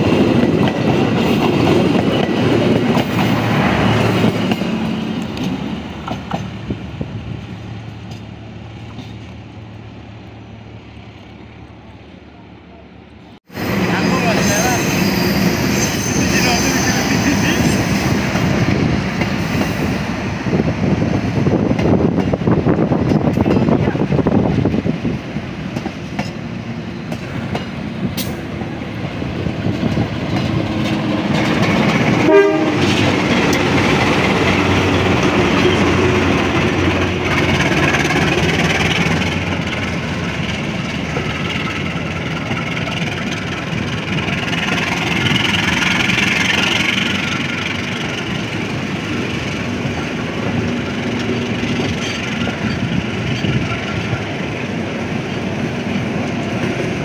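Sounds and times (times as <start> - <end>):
locomotive passing: 0.0 - 57.0
train wheels clattering over rail joints: 27.1 - 56.9.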